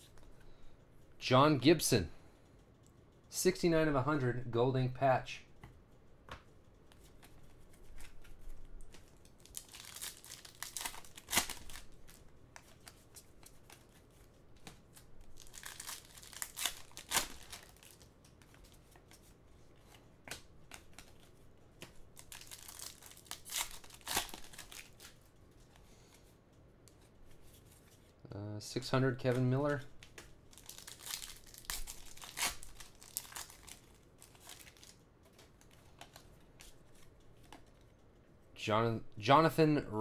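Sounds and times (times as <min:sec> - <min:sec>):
foil wrappers crinkling and tearing: 0:08.8 - 0:14.0, 0:14.9 - 0:18.8, 0:22.1 - 0:25.2, 0:30.5 - 0:37.8.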